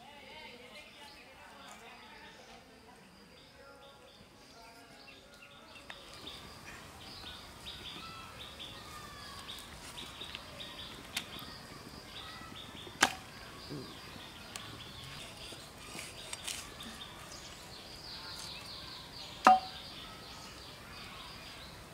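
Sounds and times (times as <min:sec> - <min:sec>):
faint birds chirping: 0:00.0 - 0:21.9
loud sharp crack: 0:13.0 - 0:13.3.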